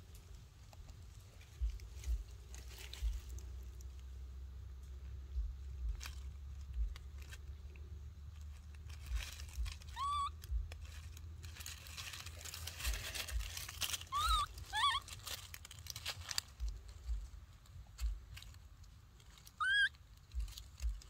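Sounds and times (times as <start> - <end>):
dry leaves rustling and crunching: 0.0 - 4.2, 5.6 - 21.0
baby monkey squeaky calls: 9.6 - 10.8, 14.0 - 15.4, 19.5 - 20.0.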